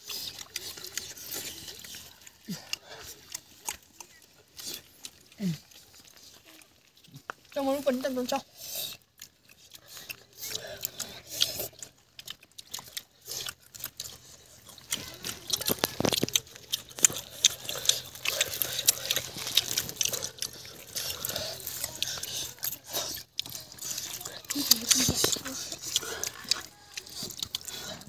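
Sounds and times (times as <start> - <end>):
chewing and crunching: 0.0 - 28.0
fingers pulling crisp fish: 11.6 - 28.0.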